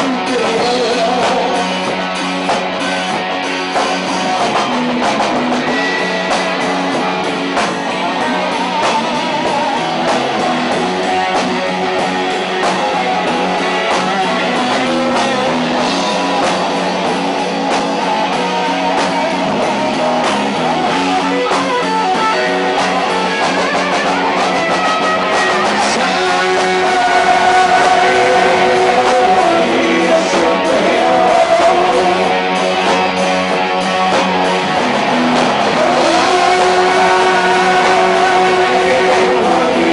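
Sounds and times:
person singing: 0.0 - 1.9, 25.8 - 33.3, 35.6 - 39.9
bass guitar: 0.0 - 39.9
drums: 0.0 - 39.9
electric guitars: 0.0 - 39.9.

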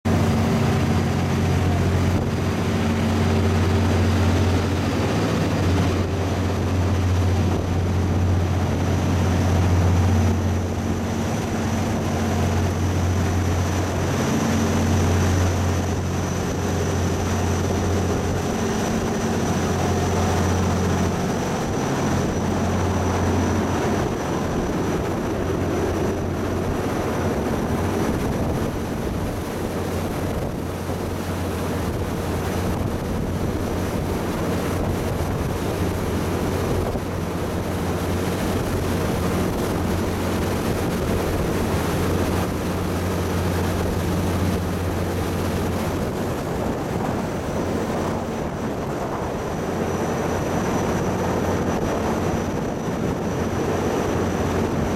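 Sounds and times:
waterjet wake rushing: 0.0 - 54.9
boat diesel engines droning: 0.1 - 54.9.

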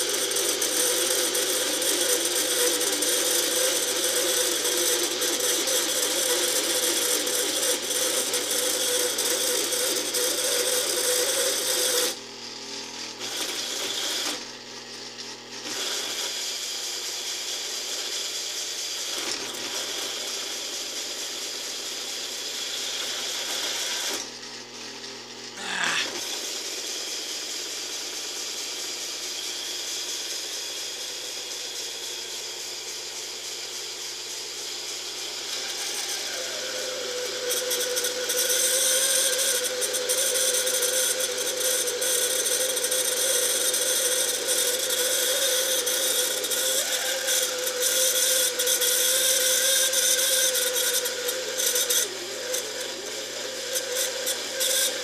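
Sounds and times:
lathe cutting steel: 0.0 - 12.2, 13.2 - 14.6, 25.6 - 55.0
brief squeal: 35.7 - 55.0.

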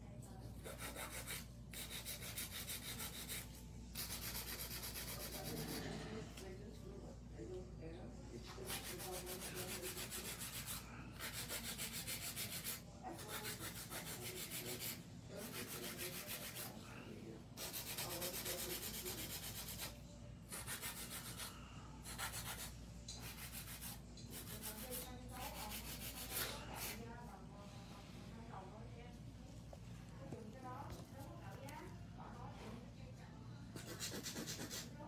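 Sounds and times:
nail file rasping on nail: 0.6 - 6.0, 8.6 - 16.8, 17.6 - 27.0, 33.8 - 35.0.

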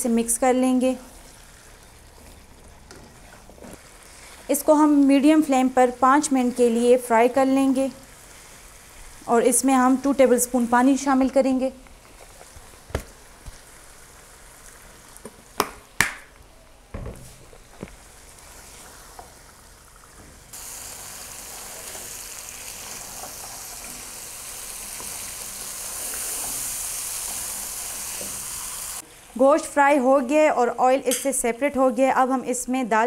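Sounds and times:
meat frying and sizzling in a wok: 1.1 - 11.1, 12.0 - 15.6, 18.0 - 29.3.

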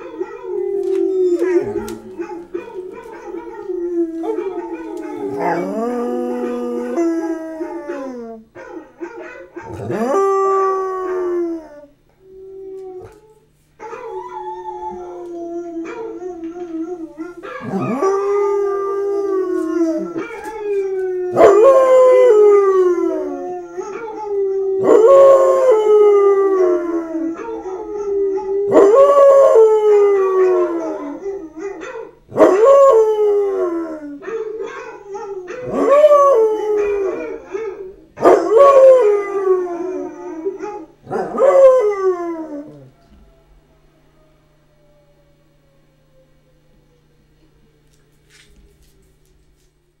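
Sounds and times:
dog howling: 0.0 - 47.2.

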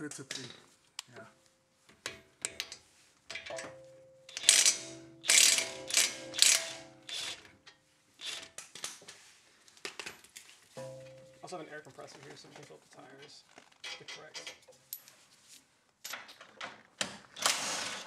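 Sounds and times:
impact wrench hammering: 4.3 - 7.4.

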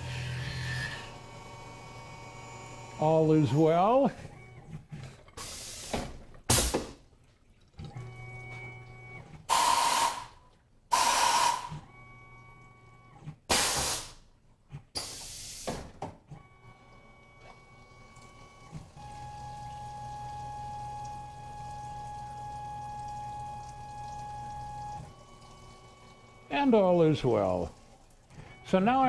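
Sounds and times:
faint whining motor tones: 0.0 - 5.0, 10.9 - 13.4, 16.2 - 29.0
sharp air hiss bursts: 5.4 - 6.8, 9.5 - 10.3, 10.9 - 11.7, 13.5 - 14.2, 15.0 - 15.8
coolant hissing: 5.4 - 7.0, 9.5 - 11.7, 19.0 - 29.0.

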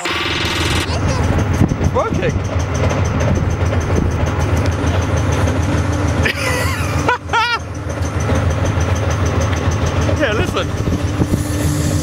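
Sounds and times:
tank diesel engine idling: 0.0 - 12.0.

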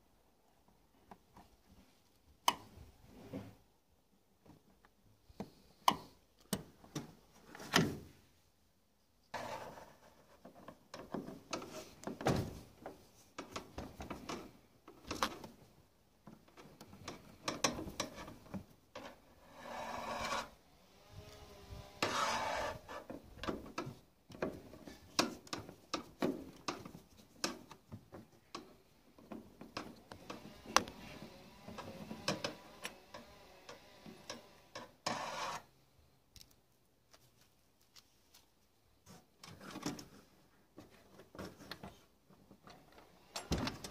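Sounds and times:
metal scraping: 19.0 - 20.6, 21.7 - 23.1, 35.0 - 35.7.

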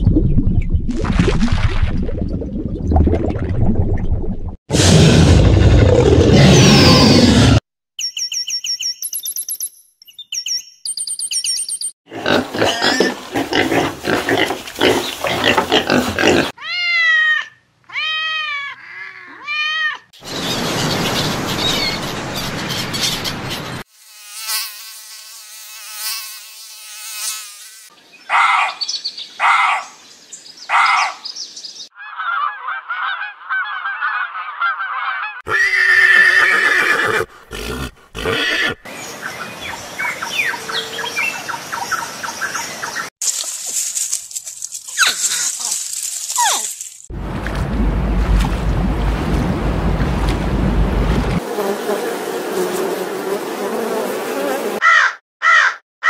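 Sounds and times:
pigs grunting and squealing: 12.1 - 16.6, 35.5 - 38.8.

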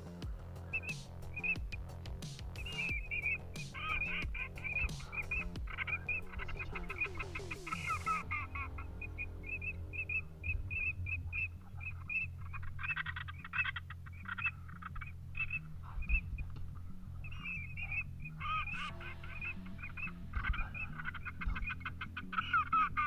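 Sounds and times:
short high whistled duck calls: 0.0 - 16.5, 17.2 - 23.0
duck quacking: 0.0 - 23.0
steady low hum: 0.0 - 23.0.

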